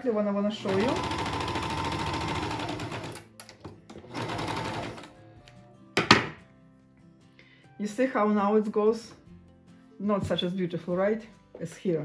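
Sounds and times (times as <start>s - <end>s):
overlock sewing machine running: 0.6s - 3.2s, 3.9s - 5.1s.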